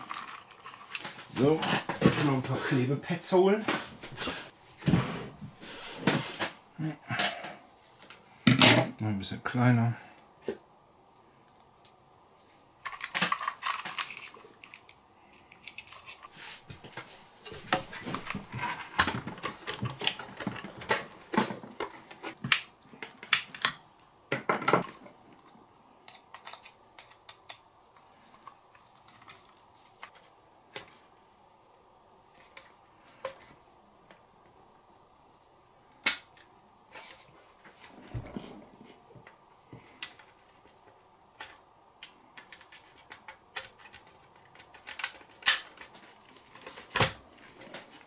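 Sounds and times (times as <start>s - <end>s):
hands handling small parts: 0.0s - 2.5s, 10.5s - 23.8s.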